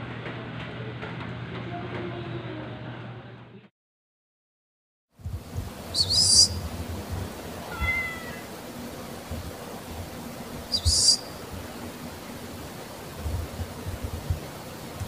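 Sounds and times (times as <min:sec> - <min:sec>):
cats meowing: 0:07.6 - 0:08.5.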